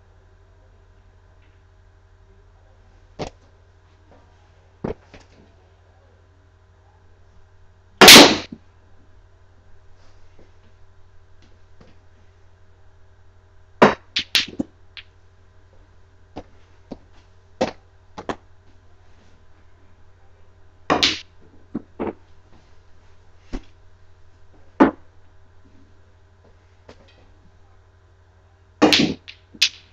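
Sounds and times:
pool balls clacking: 13.8s - 15.1s, 16.4s - 18.4s, 20.9s - 22.3s, 24.8s - 25.1s, 28.8s - 29.9s.

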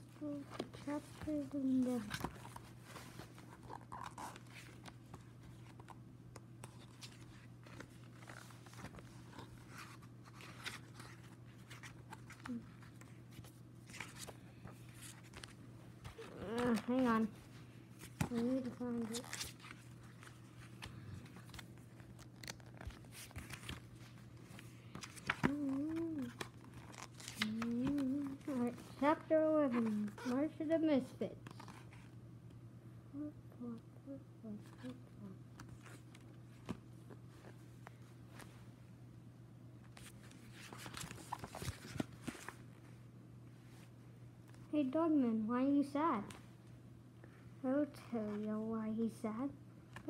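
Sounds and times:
low steady hum: 0.0s - 50.0s
book pages flipping: 0.2s - 30.4s, 31.4s - 32.2s, 34.6s - 38.8s, 39.8s - 42.9s
child humming: 16.2s - 17.2s, 25.4s - 26.4s, 27.4s - 28.9s, 33.1s - 35.4s.

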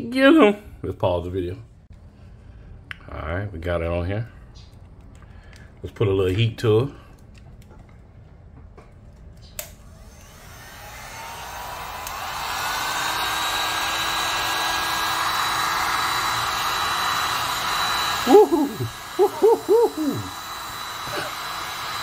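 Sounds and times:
heat gun blowing with whine: 9.6s - 22.0s
man hooting: 18.1s - 21.4s.

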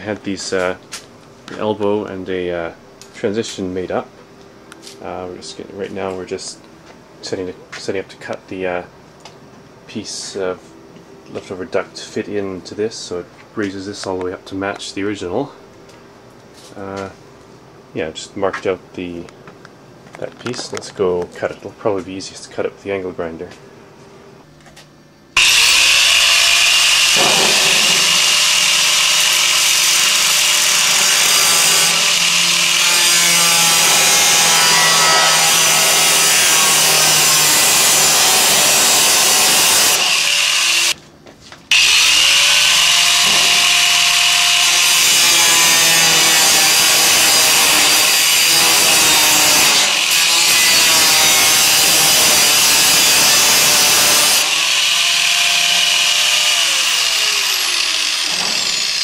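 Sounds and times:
angle grinder cutting sheet metal: 25.4s - 41.0s, 41.7s - 59.0s.

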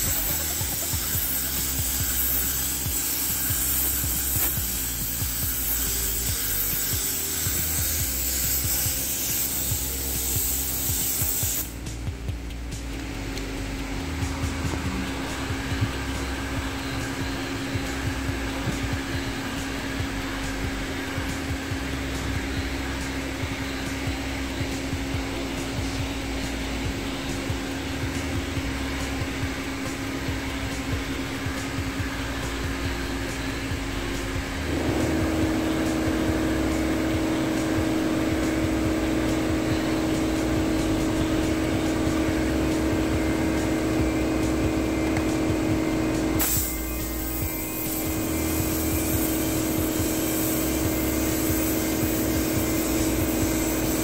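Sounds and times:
hiss: 0.0s - 12.0s, 46.2s - 54.0s
heat gun fan whirring: 0.0s - 54.0s
machine drone hum: 0.0s - 54.0s.

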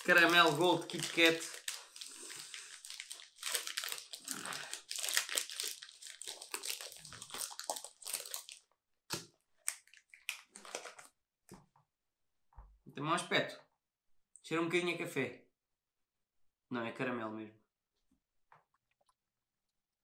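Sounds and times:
wrapper crinkling: 0.0s - 8.7s, 9.6s - 11.1s.

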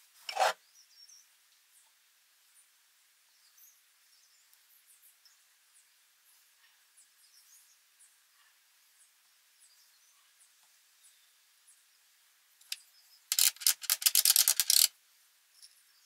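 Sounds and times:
single scrape: 0.2s - 0.6s.

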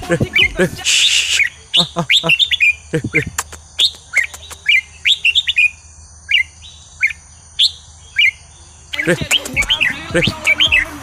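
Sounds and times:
bird whistled chirps: 0.2s - 11.0s
bird sharp ticks: 1.3s - 5.7s, 8.2s - 10.8s.

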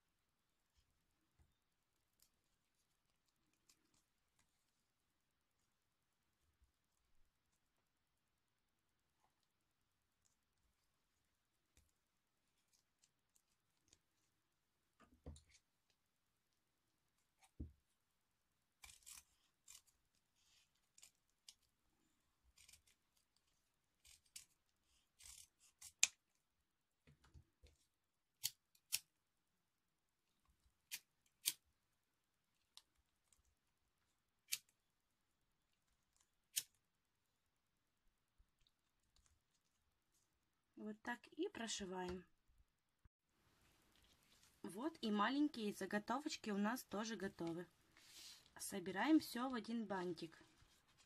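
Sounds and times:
scissors snipping: 18.8s - 20.0s, 25.2s - 26.2s
ribbon rustling: 50.2s - 51.0s.

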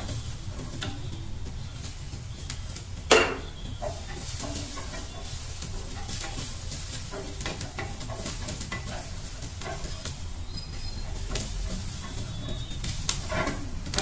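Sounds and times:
gas burner noise: 0.0s - 14.0s
pasta frying in a pan: 0.0s - 14.0s
wooden spatula scraping pan: 0.0s - 14.0s.

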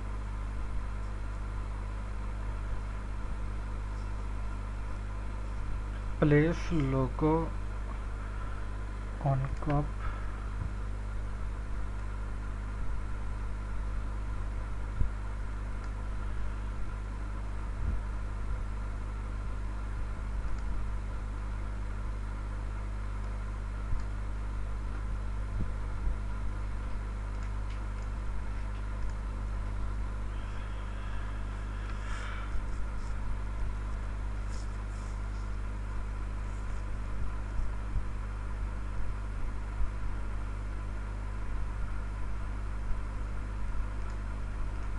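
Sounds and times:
steady low hum: 0.0s - 44.9s
faint mouse clicks: 26.9s - 29.2s, 44.0s - 44.2s.

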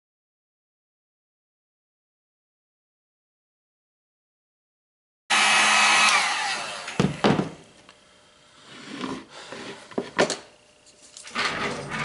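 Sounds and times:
heat gun fan whine: 5.3s - 8.7s, 9.3s - 12.0s.

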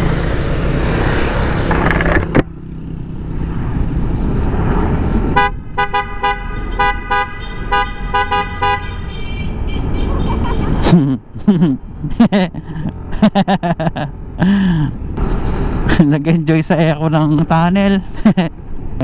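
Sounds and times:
road noise: 0.0s - 19.0s
motorcycle horns beeping: 5.4s - 10.8s
engines running: 10.8s - 18.4s.

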